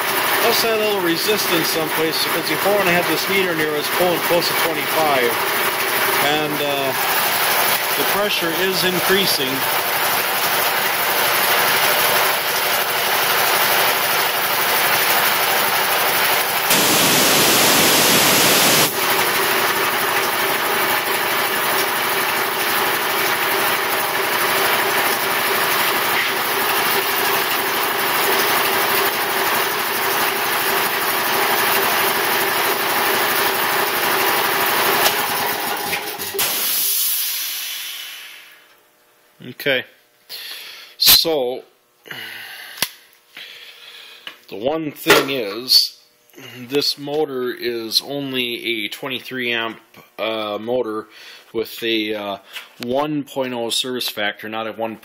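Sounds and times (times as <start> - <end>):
air compressor running: 0.0 - 38.8, 42.0 - 44.5, 46.2 - 47.0
compressor shutoff hiss: 16.6 - 19.4, 34.9 - 38.8
loud rush of noise: 16.7 - 19.0.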